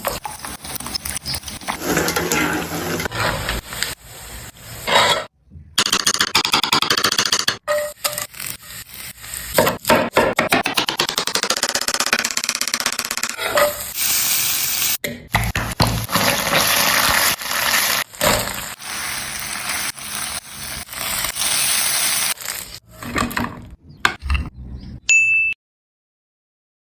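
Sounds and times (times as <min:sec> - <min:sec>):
spatula scraping a pan: 0:00.0 - 0:04.0, 0:04.7 - 0:05.3, 0:07.7 - 0:09.7, 0:13.4 - 0:14.0
hot oil sizzling in a pan: 0:13.8 - 0:15.0, 0:15.8 - 0:22.8.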